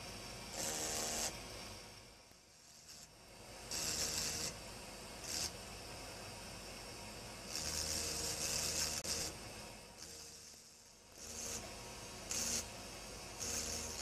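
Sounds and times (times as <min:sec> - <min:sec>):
engraving drill grinding glass: 0:00.5 - 0:01.3, 0:02.5 - 0:03.1, 0:03.7 - 0:04.6, 0:05.2 - 0:05.6, 0:07.5 - 0:09.4, 0:10.0 - 0:12.7, 0:13.3 - 0:14.0.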